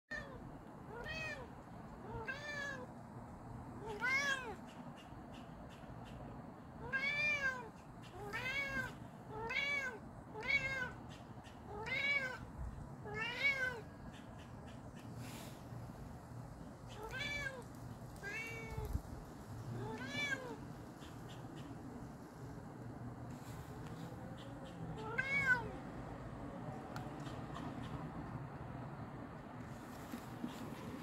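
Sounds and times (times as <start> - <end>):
cat meowing: 0.1 - 2.9, 3.8 - 4.8, 6.8 - 13.9, 16.9 - 17.6, 18.2 - 19.0, 19.7 - 20.7, 24.4 - 25.9.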